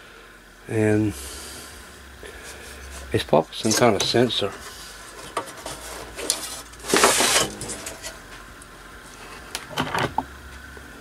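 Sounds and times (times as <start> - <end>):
wiring scraping rustle: 2.4 - 8.3.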